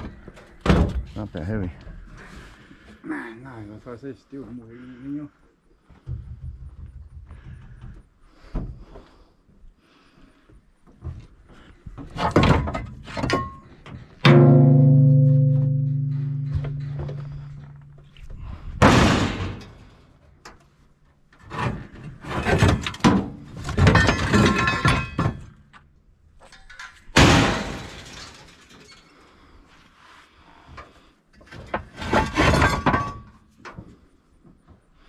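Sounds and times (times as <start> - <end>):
scrap metal knocks: 12.0 - 18.0
rattling metal clatter: 12.1 - 19.9, 21.4 - 25.6
metal clanging: 12.2 - 19.9.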